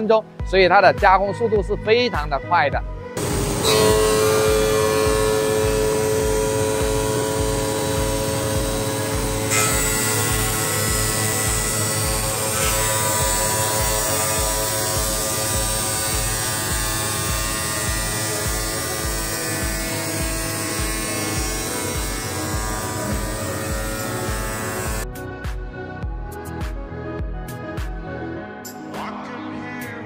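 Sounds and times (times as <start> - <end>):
thumping music beat: 0.4 - 28.1
tile cutting saw whirring: 3.2 - 25.0.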